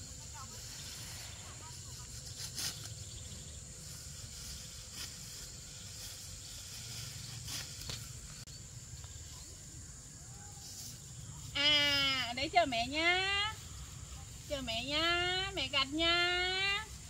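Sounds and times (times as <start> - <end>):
high insect drone: 0.0 - 17.0.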